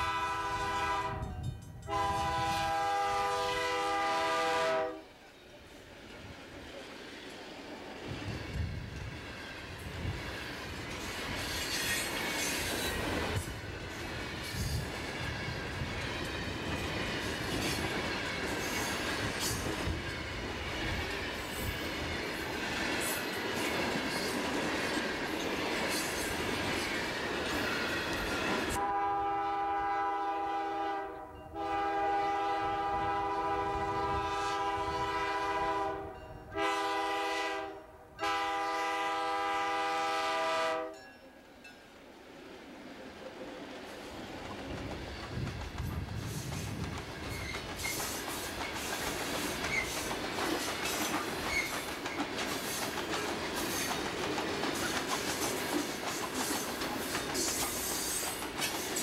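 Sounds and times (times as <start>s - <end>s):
locomotive air horn blasts: 0.0s - 5.0s, 28.8s - 41.0s
diesel locomotives approaching: 0.0s - 59.0s
train wheels clacking over rail joints: 8.0s - 28.8s, 43.9s - 59.0s.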